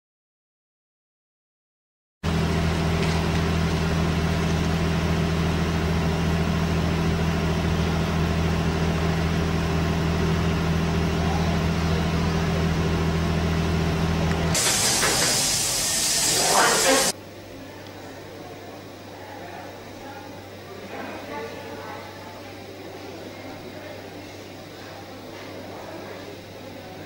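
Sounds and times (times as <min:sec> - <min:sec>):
engine idling: 0:02.2 - 0:17.1
hiss: 0:14.6 - 0:17.2.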